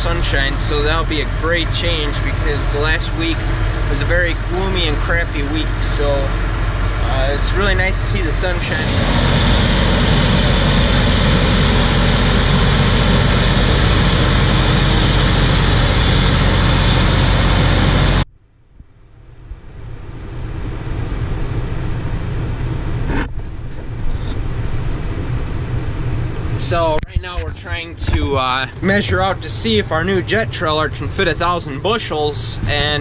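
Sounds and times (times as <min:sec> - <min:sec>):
farm machinery engine running: 0:00.0 - 0:18.3
quieter steady engine noise: 0:00.0 - 0:18.3, 0:19.0 - 0:33.0.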